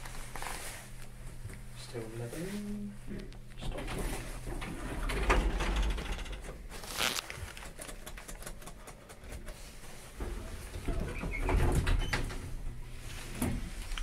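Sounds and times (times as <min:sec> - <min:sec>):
lift doors sliding open: 0:03.6 - 0:06.7, 0:10.1 - 0:14.0.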